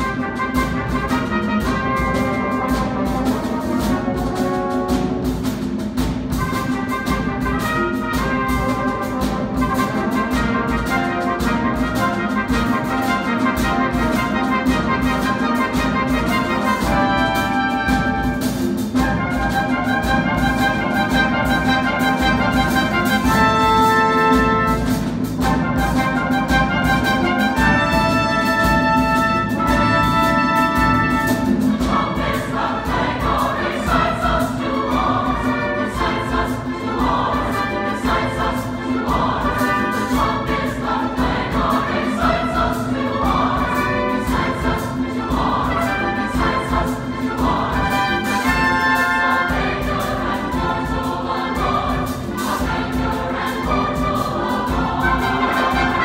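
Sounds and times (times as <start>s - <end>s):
choir singing: 0.0s - 56.0s
strings and brass orchestra: 0.0s - 56.0s.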